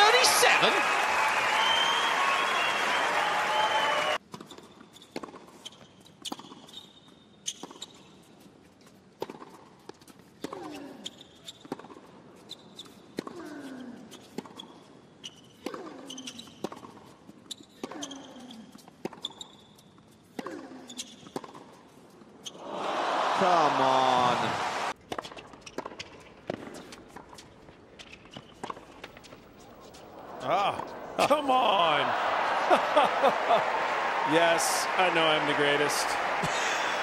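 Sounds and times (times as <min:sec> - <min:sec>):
applause: 0:00.0 - 0:04.2, 0:22.6 - 0:25.0, 0:30.4 - 0:37.0
shoe squeaks on court: 0:04.3 - 0:08.3, 0:11.0 - 0:11.8, 0:12.4 - 0:13.2, 0:14.1 - 0:20.2, 0:20.9 - 0:21.5, 0:25.3 - 0:30.1.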